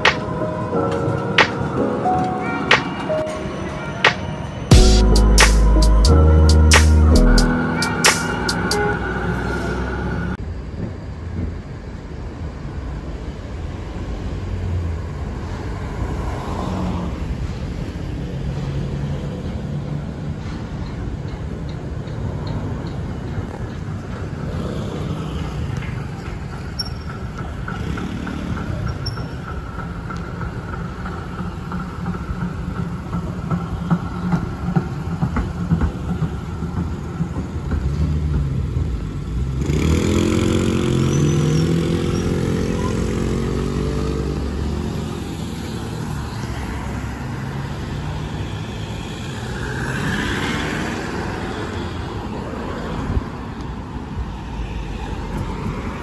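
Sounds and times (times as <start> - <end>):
cars driving past: 0.0 - 11.2, 12.1 - 56.0
trams rumbling on rails: 0.0 - 56.0.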